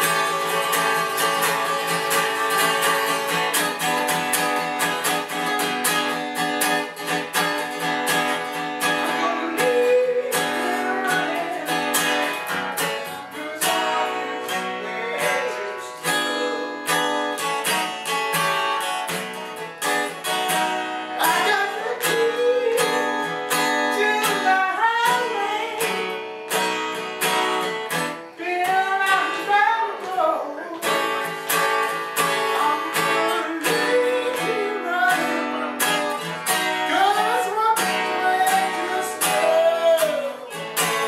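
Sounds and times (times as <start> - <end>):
acoustic guitar strumming blues: 0.0 - 41.0
person singing: 8.4 - 17.4, 21.0 - 26.2, 27.9 - 31.4, 32.0 - 41.0.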